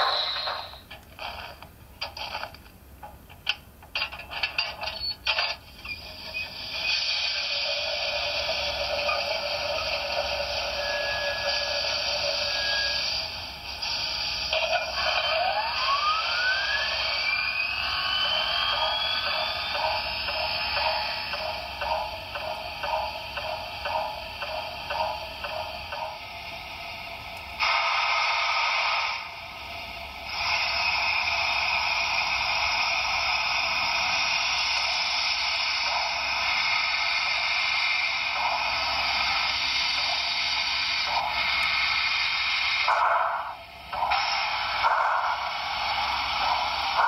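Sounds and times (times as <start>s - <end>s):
loud steady hiss: 6.0s - 47.0s
model steam locomotive chuffing: 6.2s - 47.0s.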